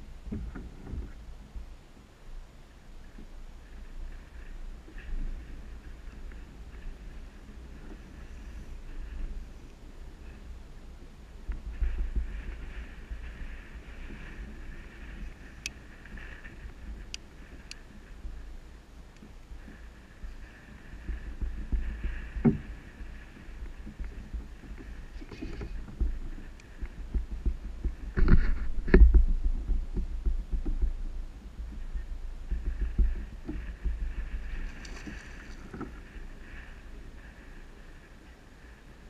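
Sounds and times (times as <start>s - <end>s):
water thumping against kayak hull: 21.0s - 31.8s, 32.4s - 36.1s.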